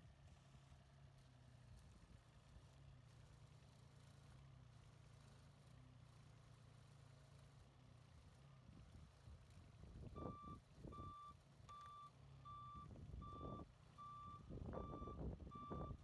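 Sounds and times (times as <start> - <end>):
engine running: 0.0 - 16.0
backup alarm beeping: 10.2 - 16.0.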